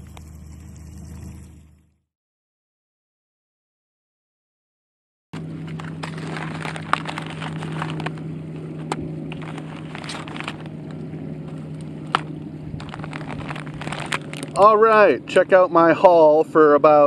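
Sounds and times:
steady low hum: 0.0 - 2.0, 5.4 - 17.0
packaging rustling and crackling: 5.6 - 14.7.

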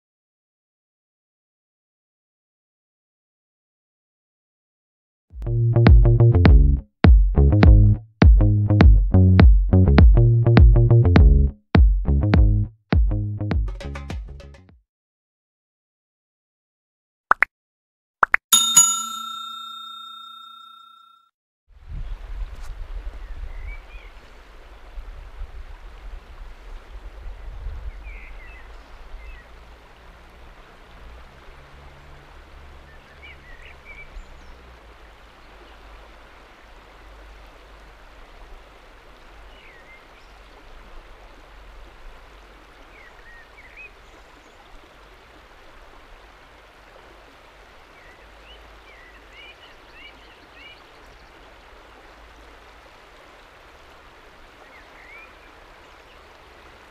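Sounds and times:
river water flowing: 18.6 - 20.8, 22.2 - 56.9.

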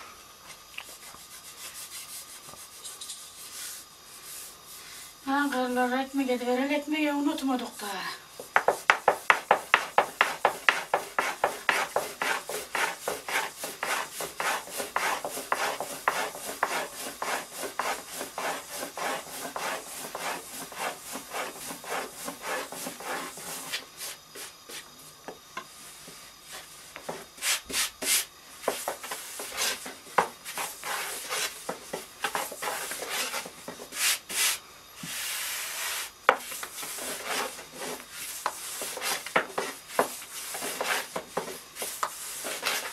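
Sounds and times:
rolling pin rolling dough: 8.3 - 24.9, 26.0 - 42.9.

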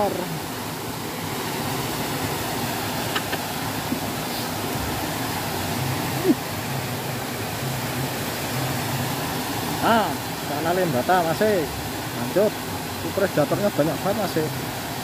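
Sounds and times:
waterfall and river rushing: 0.0 - 15.0.

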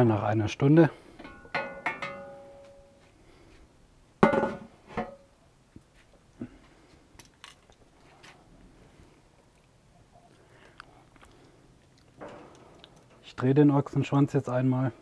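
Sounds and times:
metal pan lid clanging: 1.2 - 2.8, 12.2 - 13.3.

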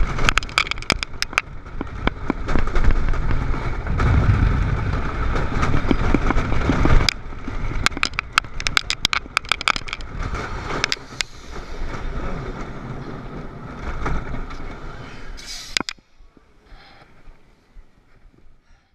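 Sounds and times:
train click: 0.0 - 18.4
roller coaster train rumbling: 0.0 - 18.6
sharp clacks of brakes: 5.3 - 17.1.

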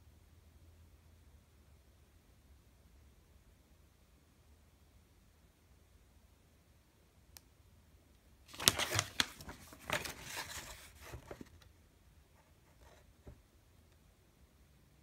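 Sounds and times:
paper rustling and crinkling: 8.5 - 11.7.

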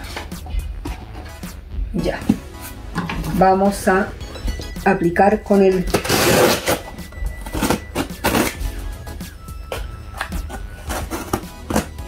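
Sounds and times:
background music: 0.0 - 12.0
cardboard box being unpacked: 5.9 - 8.6, 9.7 - 11.9.

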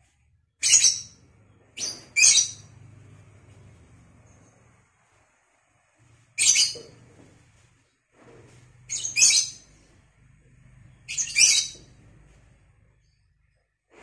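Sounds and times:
lovebird shrill chirping: 0.6 - 1.2.

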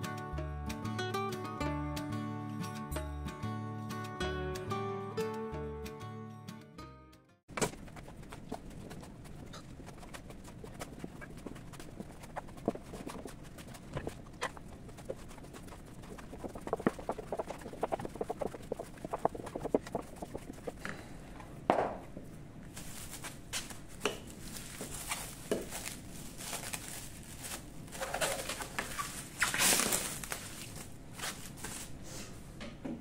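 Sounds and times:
hands kneading sticky dough: 7.5 - 21.0, 22.7 - 32.0
cling film crinkling: 7.6 - 20.8, 22.8 - 31.9.

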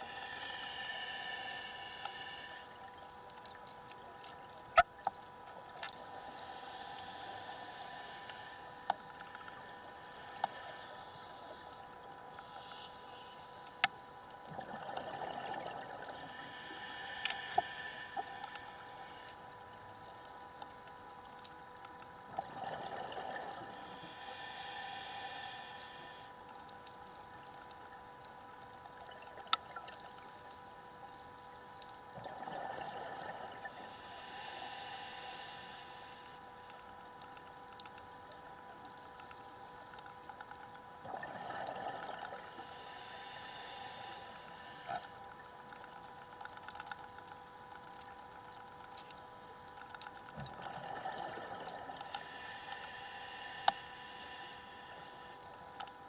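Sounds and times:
diver breathing through regulator: 0.0 - 2.8, 6.0 - 11.8, 12.4 - 14.1, 16.1 - 20.4, 23.7 - 26.4, 33.8 - 36.5, 41.5 - 45.2, 51.9 - 55.4
steady faint tone: 0.0 - 32.2, 33.2 - 41.0, 41.6 - 56.0.

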